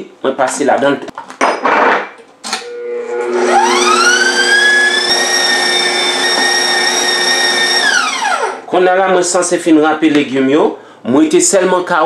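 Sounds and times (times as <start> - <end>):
mixer motor whine: 2.6 - 8.7.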